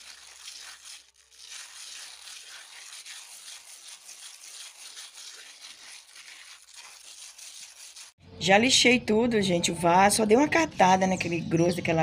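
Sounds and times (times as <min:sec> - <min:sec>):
sandpaper rubbing on cement: 0:00.0 - 0:08.2.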